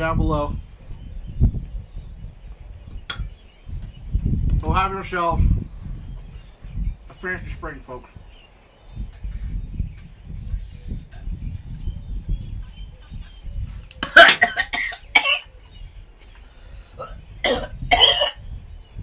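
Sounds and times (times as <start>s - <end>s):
man coughing hard: 14.0s - 15.5s, 17.0s - 18.4s.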